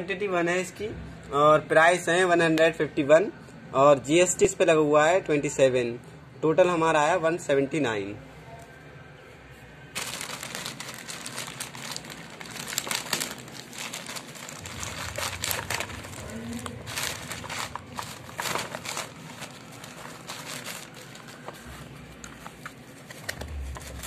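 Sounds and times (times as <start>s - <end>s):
plastic bag crinkling: 10.0s - 24.0s.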